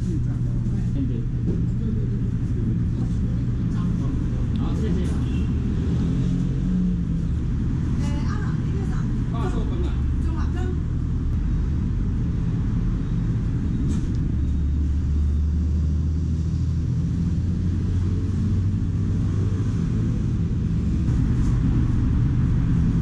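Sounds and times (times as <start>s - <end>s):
vehicle engine rumbling: 0.0s - 23.0s.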